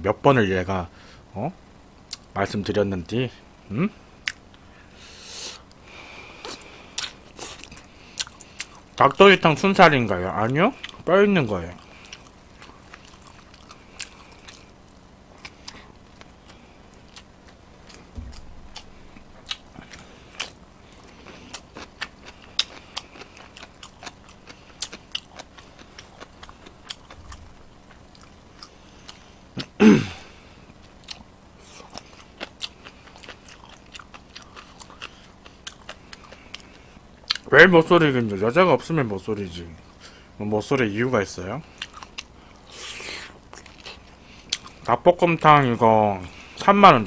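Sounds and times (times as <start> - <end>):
man chewing and lip smacking: 2.1 - 2.3, 4.2 - 4.6, 5.6 - 9.0, 10.8 - 11.1, 11.7 - 29.8, 30.6 - 37.5, 41.7 - 44.9.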